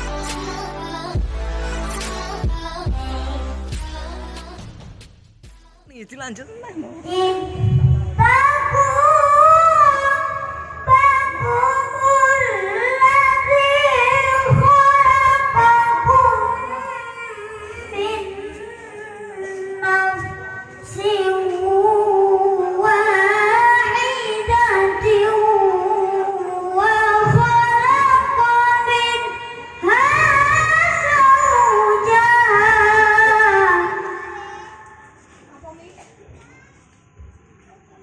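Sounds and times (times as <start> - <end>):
child reciting melodically over pa: 7.0 - 37.0.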